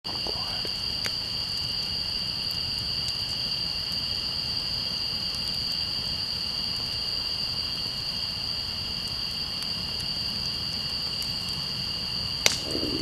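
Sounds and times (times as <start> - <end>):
campfire crackles: 0.1 - 13.0
night insects chorus: 0.1 - 13.0.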